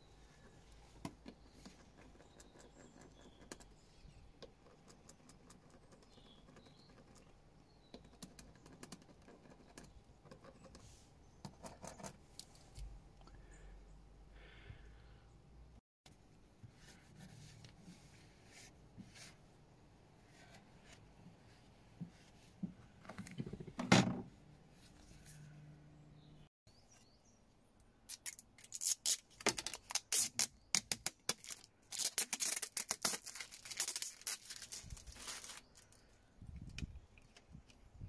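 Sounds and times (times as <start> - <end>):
film peeling with crackling rips: 28.1 - 36.0.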